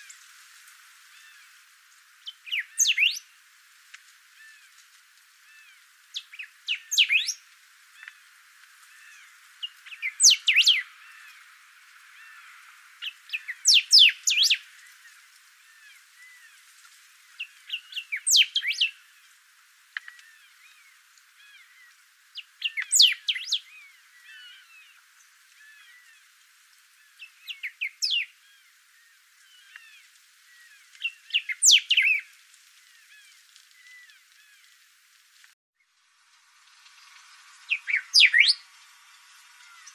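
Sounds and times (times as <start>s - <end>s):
faint background chirping: 1.0s - 3.4s, 4.2s - 34.9s, 35.8s - 39.9s
bird whistling song: 2.2s - 3.3s, 6.1s - 7.4s, 9.1s - 10.9s, 13.0s - 14.6s, 17.4s - 19.0s, 22.4s - 24.8s, 27.2s - 28.4s, 30.6s - 32.3s, 37.6s - 38.7s.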